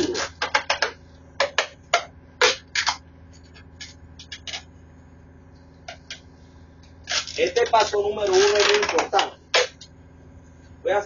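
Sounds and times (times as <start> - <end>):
steady low hum: 0.0 - 11.0
tape ripping off roll: 2.4 - 3.0, 7.0 - 9.9.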